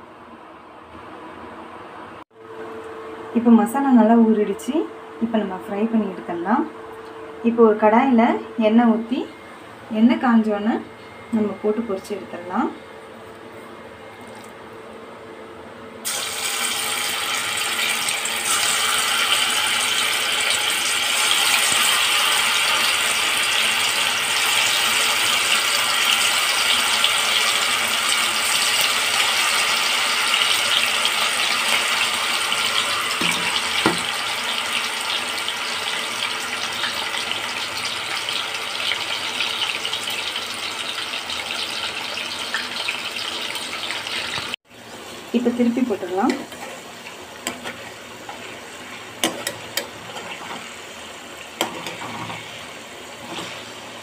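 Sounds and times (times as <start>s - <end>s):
meat deep-frying in hot oil: 16.0s - 54.0s.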